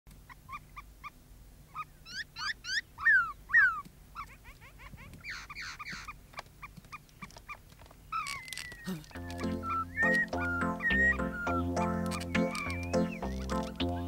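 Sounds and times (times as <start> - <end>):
dog whining: 8.2 - 13.7.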